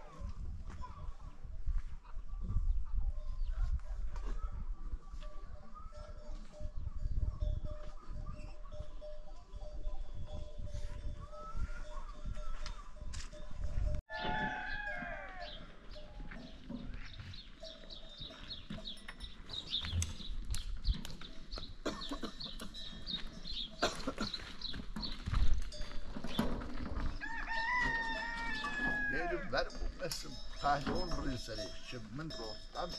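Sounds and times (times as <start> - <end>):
rooster crowing: 14.1 - 15.7, 27.2 - 29.4.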